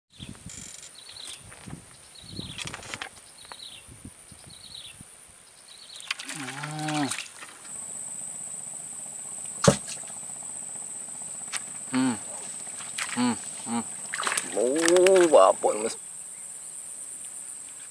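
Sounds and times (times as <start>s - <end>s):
high-pitched insect buzz: 5.9s - 17.9s
low pitched call: 6.2s - 16.5s
sharp click: 9.6s - 10.1s.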